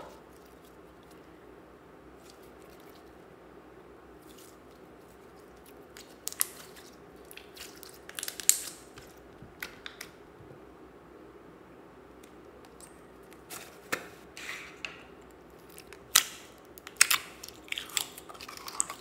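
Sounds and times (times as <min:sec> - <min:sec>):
slime squelching and popping: 0:05.6 - 0:10.2.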